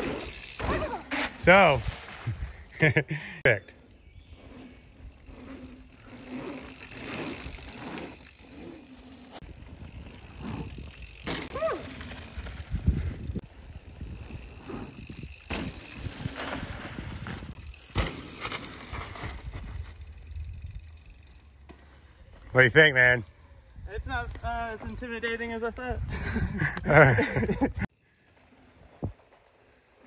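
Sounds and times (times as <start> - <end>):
bike tyres crunching on dirt: 0.0 - 2.7, 3.9 - 23.2
bike landing thumps: 15.4 - 18.9.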